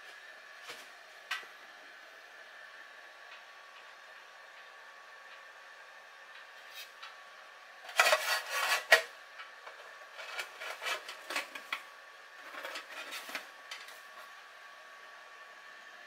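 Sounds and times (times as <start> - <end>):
metal lid scraping and clattering: 7.9 - 9.1, 10.1 - 11.8, 12.4 - 14.0.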